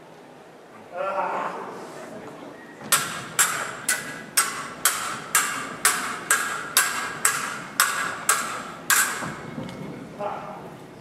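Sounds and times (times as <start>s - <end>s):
swords clashing: 2.9s - 9.4s.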